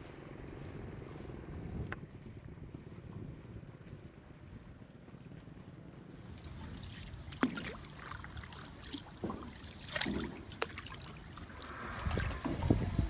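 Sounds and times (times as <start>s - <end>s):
paddles splashing in water: 6.2s - 13.0s.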